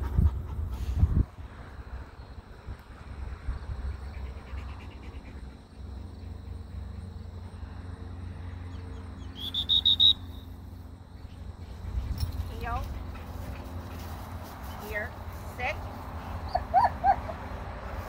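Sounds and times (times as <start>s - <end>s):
wind rumbling on microphone: 0.0s - 5.5s
high-pitched whistle-like toots: 9.4s - 10.5s.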